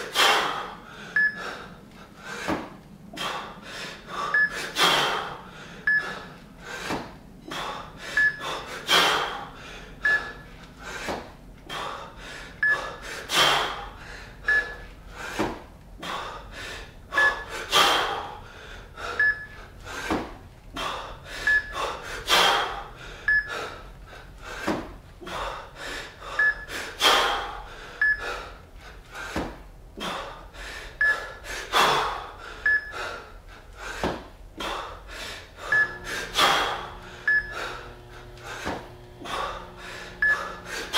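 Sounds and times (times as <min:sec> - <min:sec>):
man breathing hard: 0:00.0 - 0:40.9.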